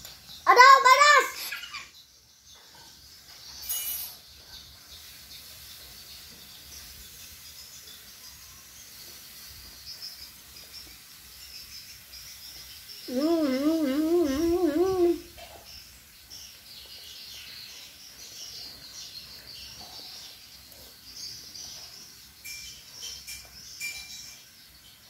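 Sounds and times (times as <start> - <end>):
high chirping: 9.8 - 25.0
child humming: 13.1 - 15.3.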